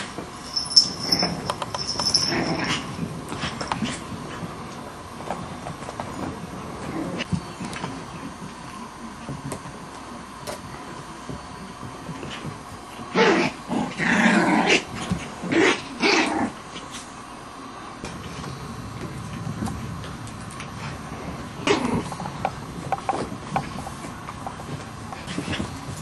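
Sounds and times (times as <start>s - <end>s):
puppies playing and yapping: 0.4s - 2.8s.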